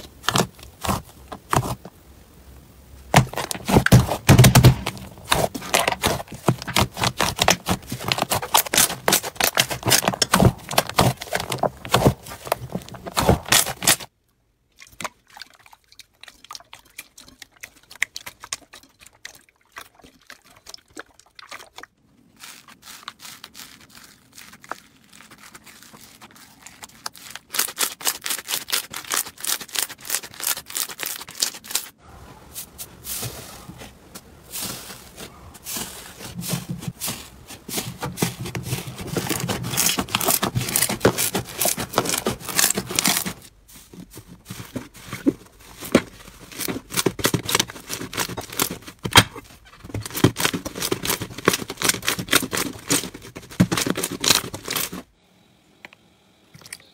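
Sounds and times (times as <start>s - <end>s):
slime crackling and popping: 3.2s - 14.1s.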